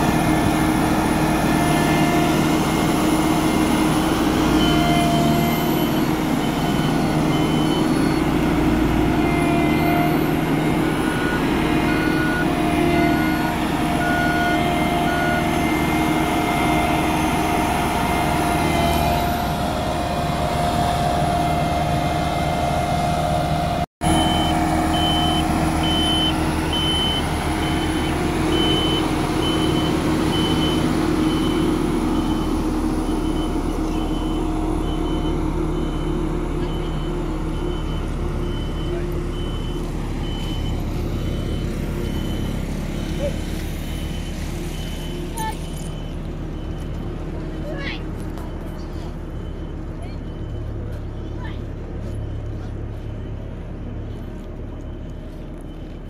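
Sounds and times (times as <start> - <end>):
diesel engine running: 0.0 - 56.0
reversing alarm beeps: 3.4 - 19.5, 24.0 - 56.0.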